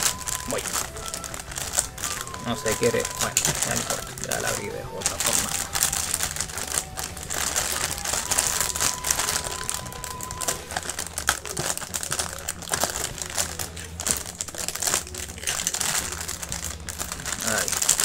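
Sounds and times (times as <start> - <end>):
plastic bags crinkling: 0.0 - 18.0.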